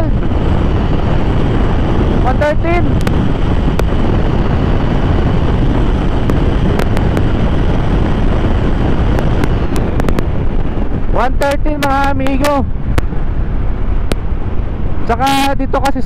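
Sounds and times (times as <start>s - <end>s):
scooter engine at full throttle: 0.0s - 11.1s
wind rushing over microphone: 0.0s - 16.0s.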